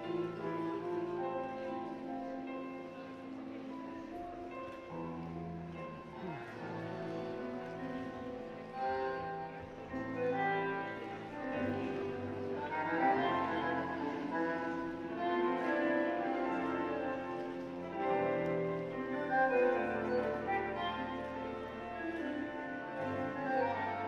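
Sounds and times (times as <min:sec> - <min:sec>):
bowed strings: 0:00.0 - 0:24.0
piano: 0:00.0 - 0:24.0
tango music over loudspeakers: 0:00.0 - 0:24.0.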